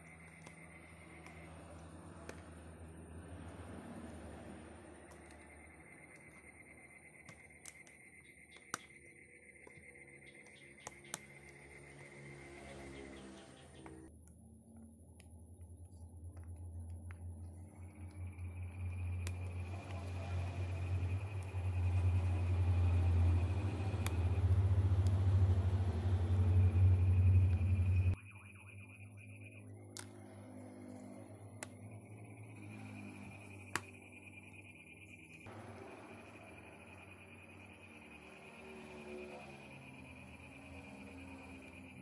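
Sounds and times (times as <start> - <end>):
steady low rumble: 14.0 - 28.2.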